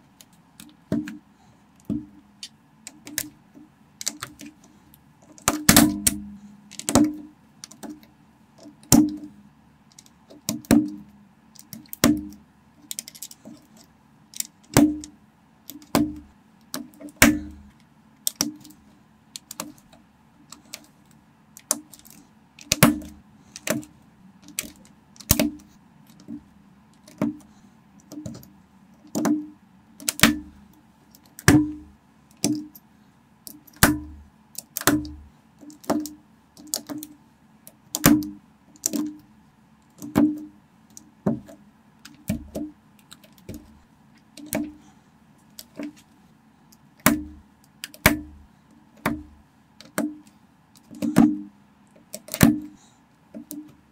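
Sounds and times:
plastic bricks snapping together: 0:21.6 - 0:26.4, 0:30.0 - 0:30.5, 0:37.9 - 0:39.2.

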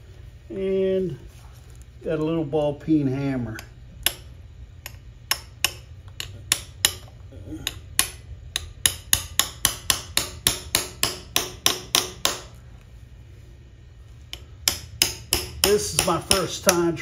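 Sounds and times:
hammer striking punch on metal: 0:04.0 - 0:12.5, 0:14.3 - 0:17.0.

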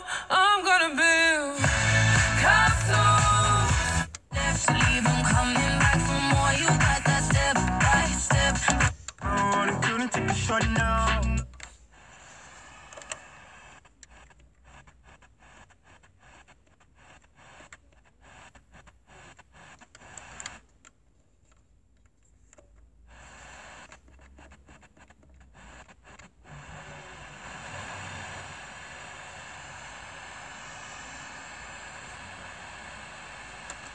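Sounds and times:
car radio static hiss: 0:01.6 - 0:20.8, 0:23.1 - 0:33.9.

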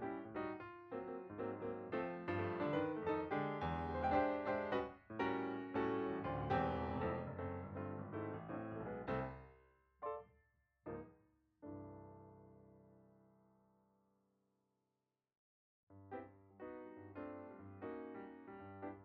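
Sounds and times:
piano music: 0:00.0 - 0:10.3, 0:16.1 - 0:19.0.

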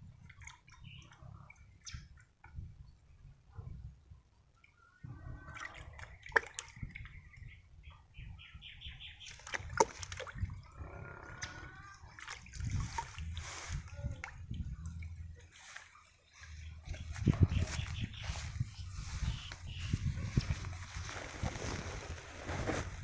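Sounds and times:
liquid sloshing in a bucket: 0:00.0 - 0:02.7, 0:05.2 - 0:07.2, 0:09.2 - 0:18.7
birds calling: 0:15.7 - 0:21.8.

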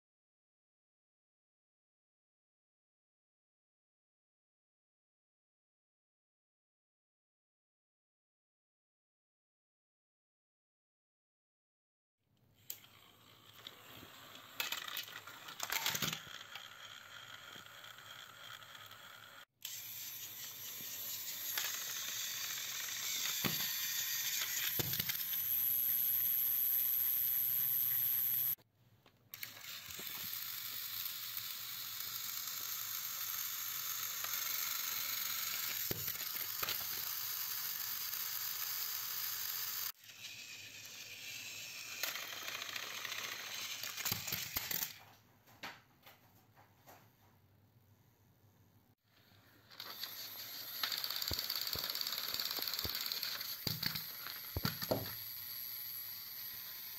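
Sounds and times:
toy train motors whirring: 0:12.6 - 0:28.6, 0:29.3 - 0:45.0, 0:49.0 - 0:56.9.

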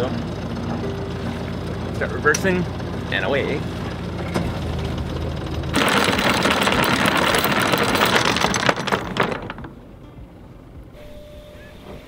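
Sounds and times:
boat engine running low: 0:00.0 - 0:07.8
anchor chain clattering: 0:04.2 - 0:09.8.

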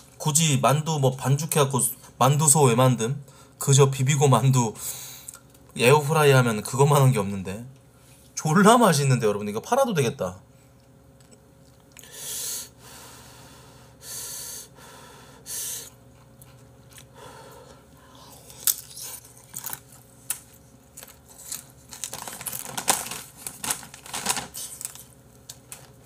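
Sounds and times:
short breaths: 0:12.0 - 0:16.0
chewing crisp dumplings: 0:16.0 - 0:17.2, 0:18.2 - 0:24.0.

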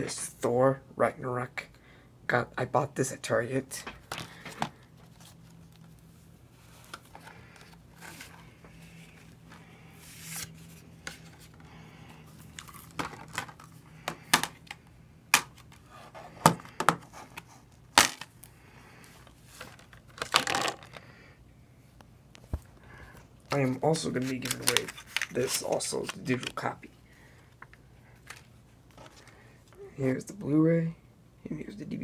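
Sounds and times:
plastic wrapping rustling: 0:23.5 - 0:26.8.

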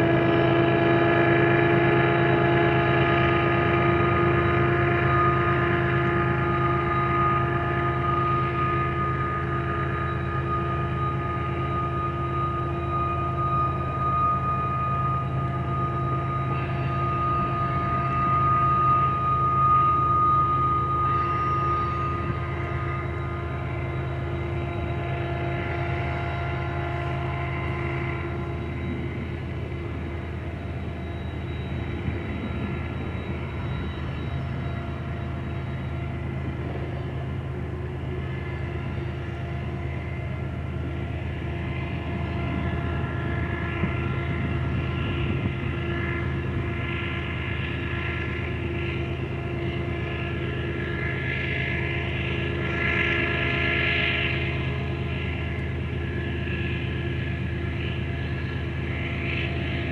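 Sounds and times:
freight train low drone: 0:00.0 - 0:59.9
train wheels grinding: 0:00.0 - 0:59.9.

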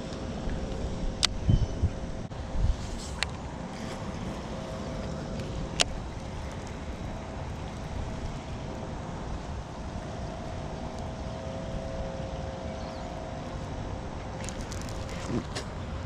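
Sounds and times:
faint two-tone hum: 0:00.0 - 0:16.0
wind rumbling on microphone: 0:00.0 - 0:16.0.

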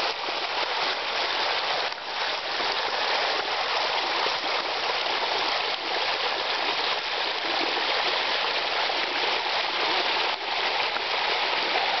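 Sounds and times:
waterfall splashing: 0:07.8 - 0:12.0.

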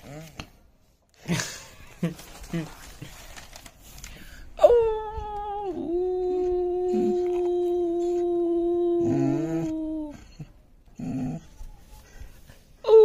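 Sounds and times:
long howl: 0:04.6 - 0:11.8
lower second howling voice: 0:04.6 - 0:12.1.

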